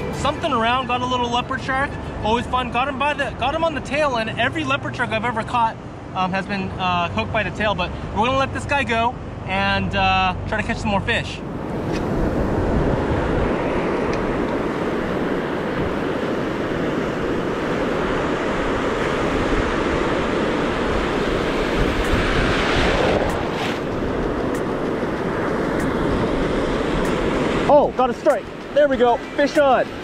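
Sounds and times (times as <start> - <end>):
ocean waves washing on beach: 11.4 - 30.0
wind buffeting microphone: 11.5 - 30.0.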